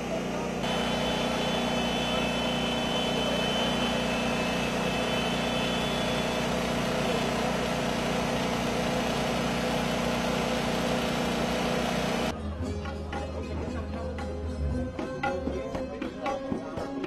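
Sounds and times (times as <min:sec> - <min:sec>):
engine running steadily: 0:00.0 - 0:12.3.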